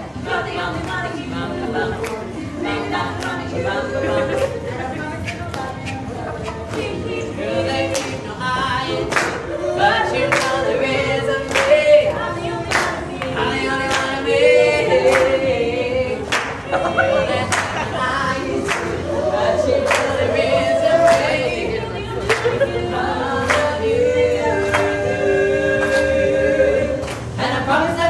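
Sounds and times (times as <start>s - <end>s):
group singing a cappella: 0.0s - 28.0s
hand claps: 3.2s - 3.5s, 5.2s - 7.0s, 7.9s - 8.2s, 9.1s - 9.4s, 10.3s - 10.6s, 11.5s - 11.8s, 12.7s - 13.3s, 15.0s - 15.4s, 16.3s - 16.6s, 17.5s - 17.8s, 18.7s - 19.0s, 19.8s - 20.2s, 21.0s - 21.4s, 22.2s - 22.6s, 23.4s - 23.8s, 24.6s - 25.0s, 25.8s - 26.2s, 27.0s - 27.3s.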